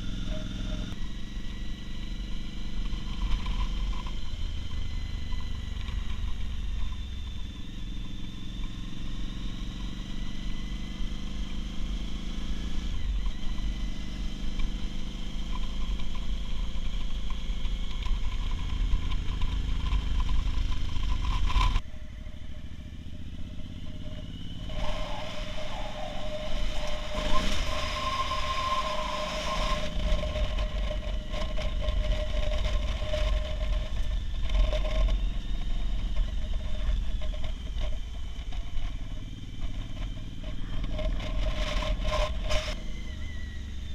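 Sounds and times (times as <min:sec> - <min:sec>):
motorcycle engine running: 0:00.0 - 0:43.9
steady whining tones: 0:15.5 - 0:43.9
wind rumbling on microphone: 0:23.8 - 0:43.9.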